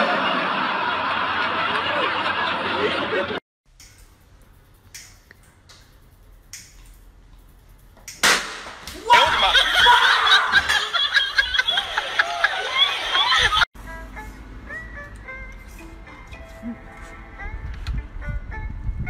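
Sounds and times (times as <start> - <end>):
people laughing: 0.0 - 3.4, 9.0 - 13.7
excited voices: 9.0 - 13.6.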